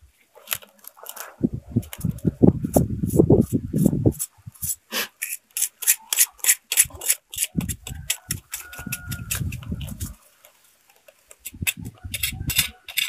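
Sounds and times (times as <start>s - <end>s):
machete scraping fish skin: 4.2s - 10.0s, 11.3s - 13.0s.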